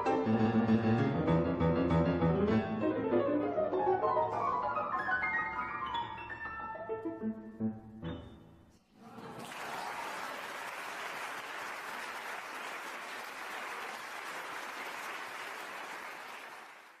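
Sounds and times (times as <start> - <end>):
audience applauding: 9.0 - 17.0.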